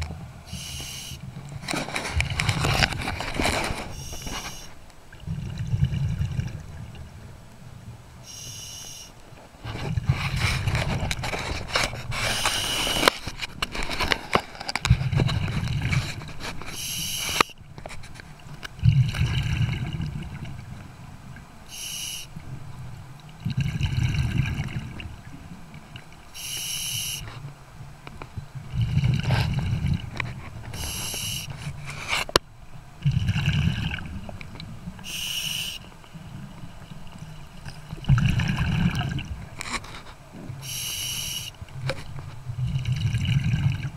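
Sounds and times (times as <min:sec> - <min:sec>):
regulator hiss: 0:00.5 - 0:01.3, 0:03.9 - 0:04.8, 0:08.2 - 0:09.2, 0:12.3 - 0:13.0, 0:16.8 - 0:17.6, 0:21.7 - 0:22.3, 0:26.4 - 0:27.3, 0:30.8 - 0:31.5, 0:35.0 - 0:36.0, 0:40.6 - 0:41.6
gurgling exhaled bubbles: 0:05.1 - 0:07.2, 0:18.8 - 0:20.8, 0:23.3 - 0:25.2, 0:28.6 - 0:31.5, 0:33.0 - 0:35.0, 0:37.6 - 0:39.6, 0:42.5 - 0:43.9.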